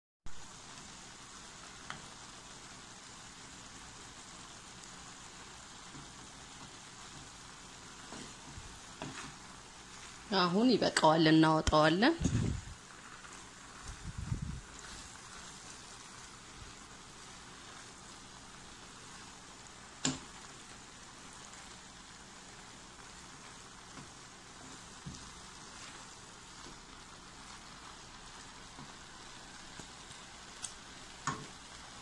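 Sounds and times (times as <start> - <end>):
vegetables sizzling in a pan: 0.3 - 32.0
wooden spatula knocking pan: 31.2 - 31.6.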